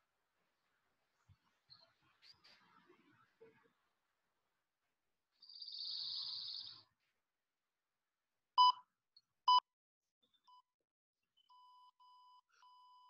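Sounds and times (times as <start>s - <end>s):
timer beeps: 8.6s - 8.8s.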